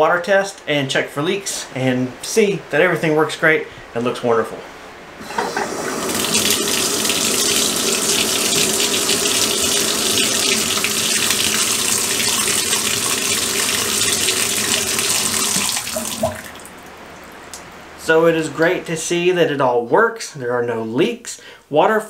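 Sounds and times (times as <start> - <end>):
water running into tub: 5.2 - 17.6.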